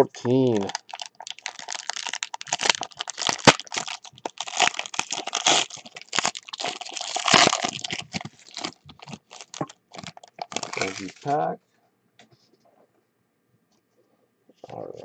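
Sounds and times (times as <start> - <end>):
foil wrapper crinkling and tearing: 0.2 - 11.4.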